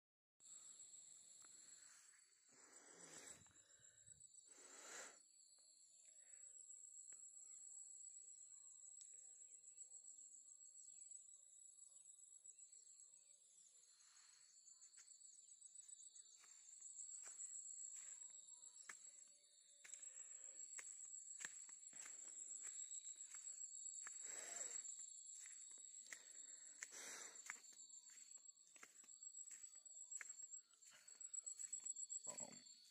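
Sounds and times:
insects trilling: 0.5 - 32.9.

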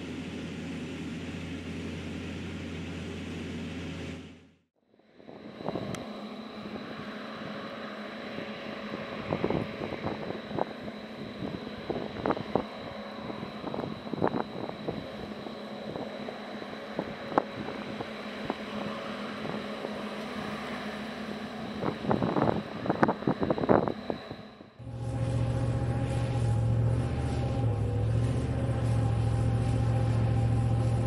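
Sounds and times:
mechanical hum with high whine: 0.0 - 31.0
wind on microphone: 5.3 - 20.5, 21.6 - 31.0.

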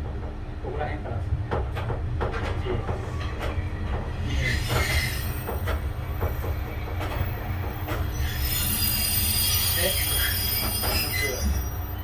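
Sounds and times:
railcar rumbling: 0.0 - 12.0
wheel and brake squeal: 4.3 - 5.8, 7.2 - 12.0.

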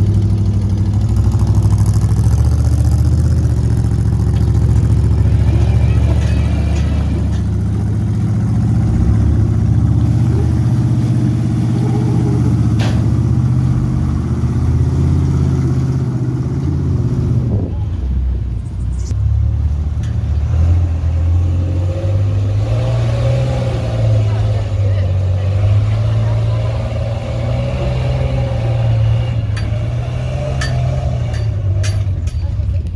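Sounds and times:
off-road engines under load: 0.0 - 32.9.

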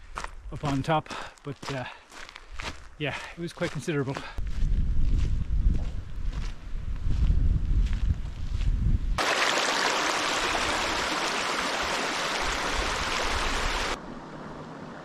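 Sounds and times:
stream rushing over stones: 9.2 - 14.0.

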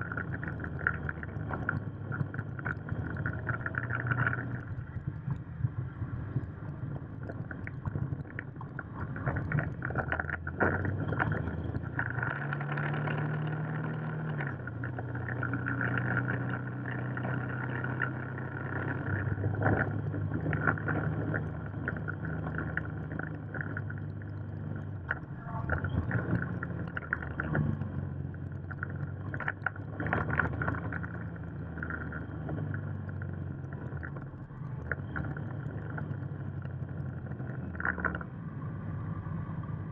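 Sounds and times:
wind buffeting microphone: 0.0 - 12.6
motorcycle engine running: 0.0 - 39.9.

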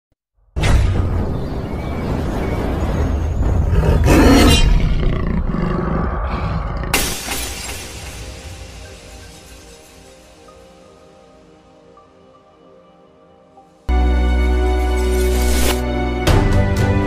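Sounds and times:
deep rumbling roar: 2.4 - 7.0
glass shattering crash: 7.0 - 10.9.

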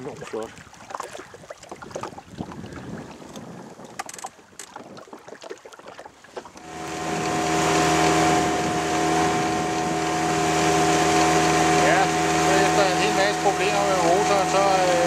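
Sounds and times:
faint water sounds: 0.0 - 15.0
water and wind hiss: 0.0 - 15.0
outboard motor running: 6.3 - 15.0.

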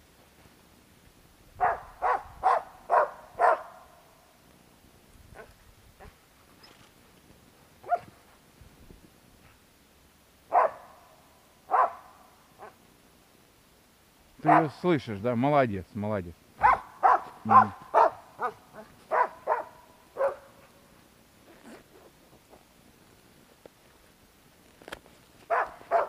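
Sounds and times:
dog barking: 1.6 - 3.9, 5.4 - 6.2, 7.8 - 8.1, 10.5 - 11.0, 11.7 - 12.8, 14.4 - 14.8, 16.6 - 20.6, 25.5 - 26.0.

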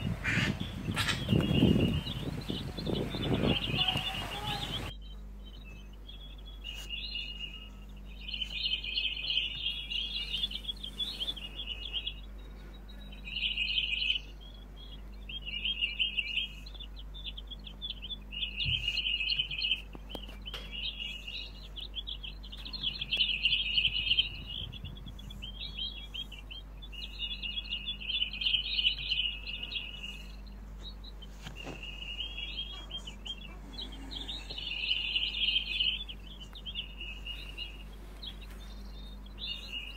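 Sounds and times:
jay chirping calls: 0.0 - 5.0, 31.5 - 39.9.

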